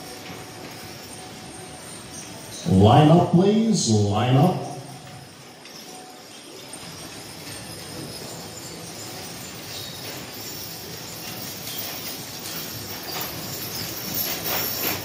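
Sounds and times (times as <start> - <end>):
harness jingling: 0.0 - 15.0
wagon wheels rumbling on sand: 5.4 - 15.0.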